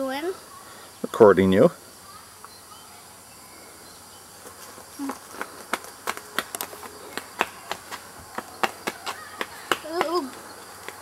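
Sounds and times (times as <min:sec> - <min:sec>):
insects chirring: 0:00.0 - 0:11.0
sandals slapping asphalt: 0:04.4 - 0:11.0.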